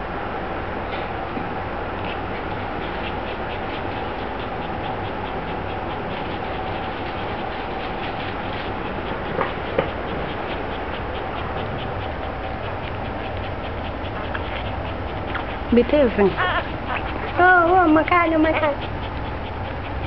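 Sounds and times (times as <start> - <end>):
steady background hum: 0.0 - 20.0
puppies nursing clicks and squeaks: 2.0 - 20.0.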